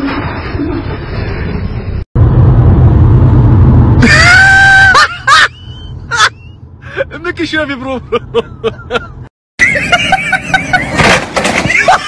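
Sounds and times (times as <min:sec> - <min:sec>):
car rumbling at speed: 0:00.6 - 0:07.0
person screaming: 0:04.0 - 0:05.1
person yelping: 0:04.0 - 0:05.1.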